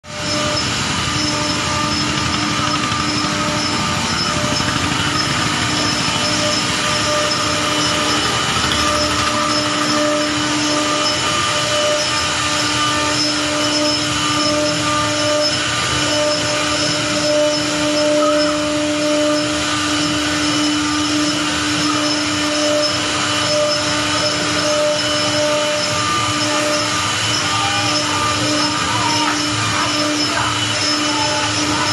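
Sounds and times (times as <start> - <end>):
wood router milling boards: 0.0 - 31.9.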